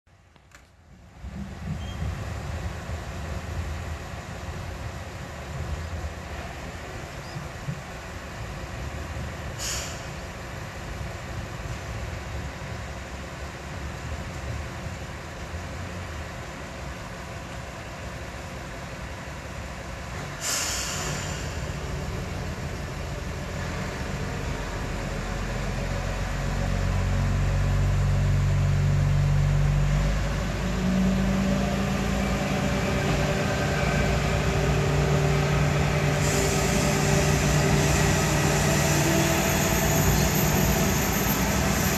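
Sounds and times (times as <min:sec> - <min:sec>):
diesel railcar engine: 0:00.1 - 0:41.9
air hissing: 0:20.4 - 0:21.8, 0:36.1 - 0:38.7.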